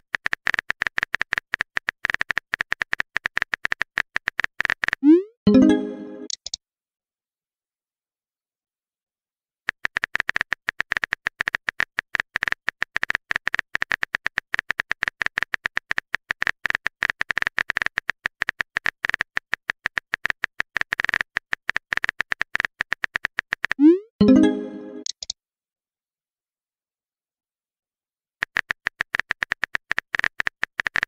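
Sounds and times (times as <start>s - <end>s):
phone keyboard typing clicks: 9.7s - 25.4s, 28.4s - 31.0s.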